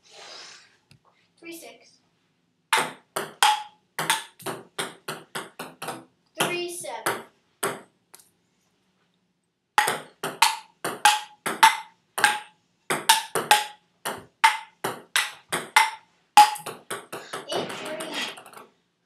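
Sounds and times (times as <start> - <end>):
ping pong ball hitting paddles: 2.7 - 7.9, 9.8 - 18.6
ball bouncing on table: 2.8 - 7.9, 9.8 - 18.6.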